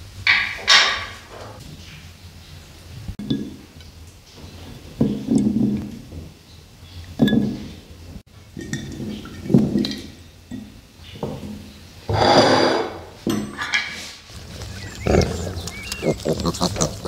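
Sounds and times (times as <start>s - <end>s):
dishes clinking on wooden table: 7.2s - 7.7s, 8.6s - 14.0s.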